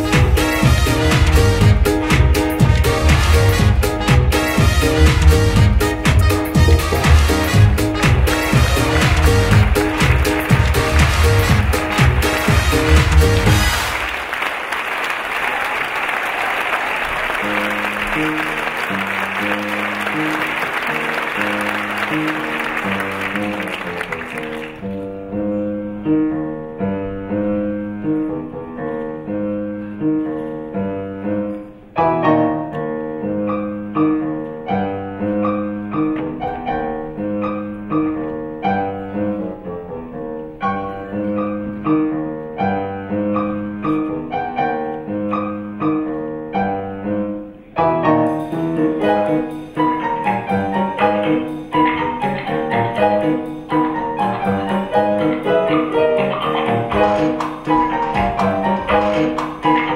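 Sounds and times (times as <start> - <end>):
piano-led backing music: 0.0 - 14.4, 17.2 - 59.9
audience applause: 7.0 - 25.0, 54.2 - 59.9.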